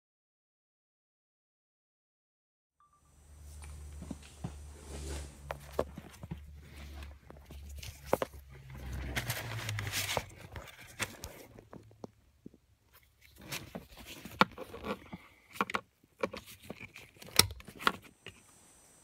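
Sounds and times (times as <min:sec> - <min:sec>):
rustling handling noise: 0:03.4 - 0:18.5.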